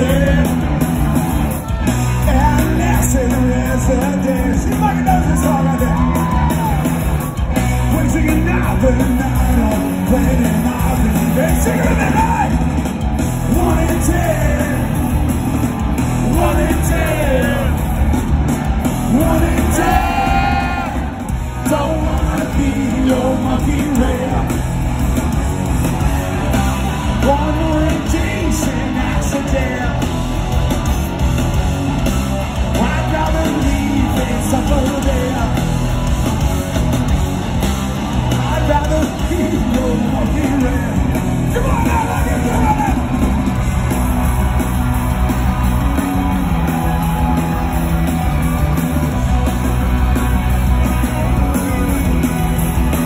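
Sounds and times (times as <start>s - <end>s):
live rock band playing: 0.0s - 53.0s
person singing and yelling: 2.2s - 6.9s, 7.5s - 12.6s, 13.4s - 15.0s, 16.2s - 17.8s, 19.1s - 24.6s, 38.4s - 43.2s.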